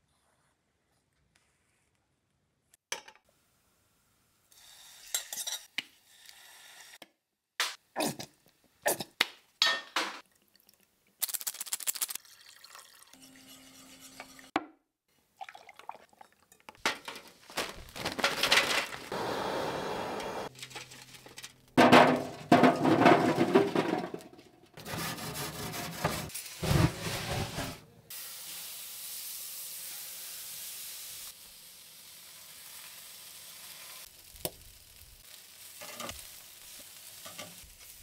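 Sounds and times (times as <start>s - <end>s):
sauce pouring into saucepan: 12.2s - 13.2s, 15.4s - 16.4s
gas burner flame rushing: 19.1s - 20.5s.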